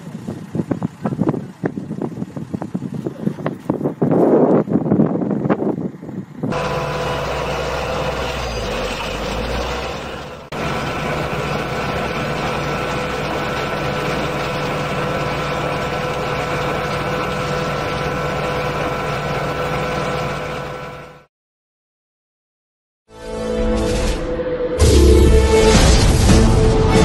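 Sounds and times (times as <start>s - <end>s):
wind buffeting microphone: 0.0s - 6.6s
combine harvester hum and whine: 4.4s - 21.3s.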